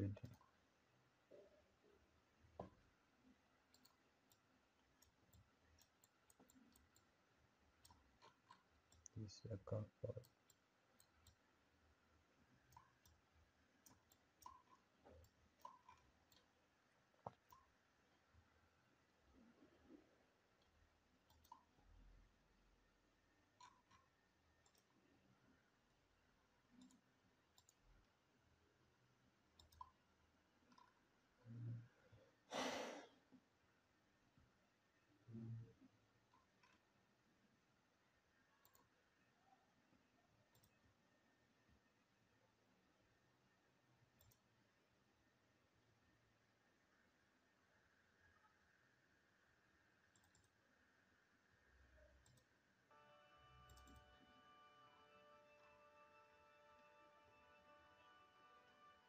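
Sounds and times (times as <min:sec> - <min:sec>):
computer mouse clicks: 0:00.0 - 0:00.6, 0:03.7 - 0:07.1, 0:07.8 - 0:09.2, 0:10.1 - 0:11.4, 0:12.7 - 0:13.2, 0:13.8 - 0:16.5, 0:17.2 - 0:17.8, 0:20.6 - 0:21.8, 0:23.5 - 0:25.0, 0:26.8 - 0:27.8, 0:29.6 - 0:30.0, 0:30.7 - 0:31.0, 0:36.3 - 0:36.9, 0:38.6 - 0:39.0, 0:40.5 - 0:40.8, 0:44.2 - 0:44.5, 0:50.1 - 0:50.6, 0:52.2 - 0:52.6, 0:53.6 - 0:54.2
short breathy exhale: 0:32.5 - 0:33.2.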